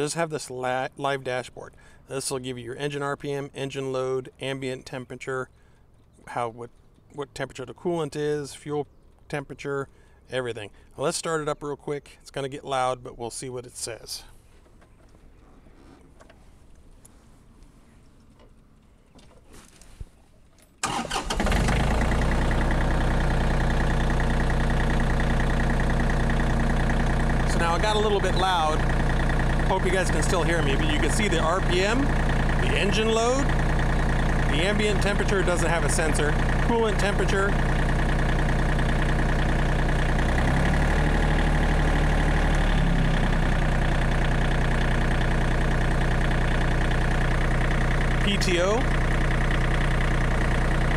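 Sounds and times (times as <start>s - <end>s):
diesel engine cranking and idling: 1.4s - 2.2s, 20.8s - 50.9s.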